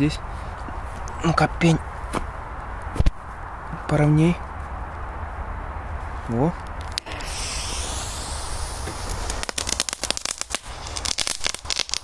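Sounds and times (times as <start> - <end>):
firecracker crackling pops: 6.8 - 12.0
firecracker hissing: 6.8 - 12.0.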